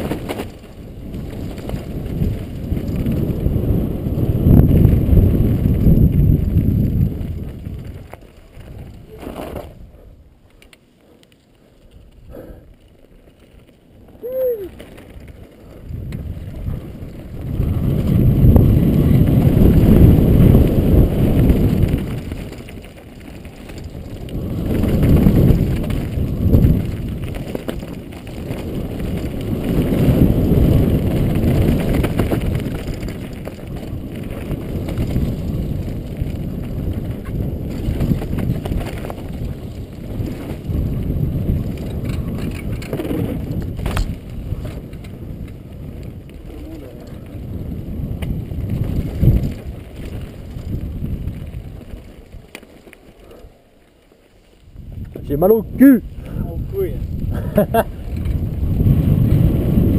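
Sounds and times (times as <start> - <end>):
bike tyres on dirt and gravel: 0.0 - 59.9
wind rumble on camera: 0.0 - 59.9.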